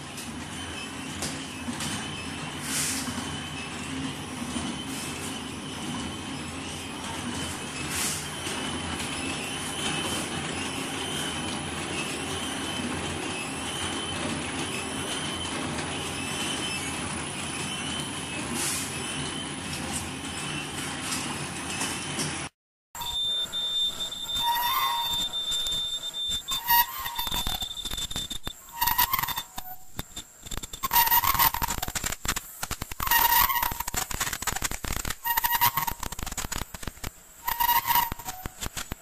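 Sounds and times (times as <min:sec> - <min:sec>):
machine running with high whine: 0:23.0 - 0:39.0.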